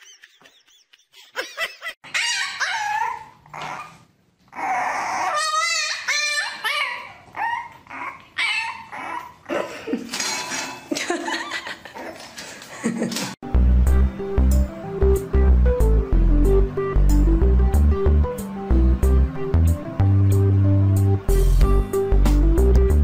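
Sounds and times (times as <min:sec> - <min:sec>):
dogs whining and yelping: 0:02.0 - 0:09.7.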